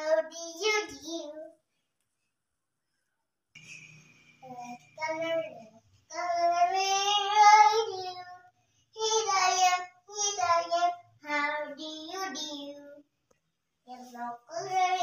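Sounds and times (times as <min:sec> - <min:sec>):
girl singing unaccompanied: 0:00.0 - 0:01.7, 0:04.4 - 0:13.1, 0:13.8 - 0:15.0.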